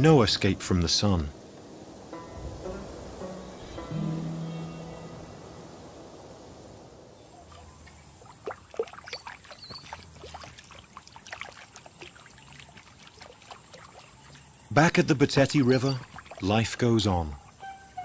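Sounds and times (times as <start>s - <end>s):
background music: 2.1s - 6.3s
thin steady high tone: 2.1s - 7.4s
water splashing and lapping: 6.3s - 17.6s.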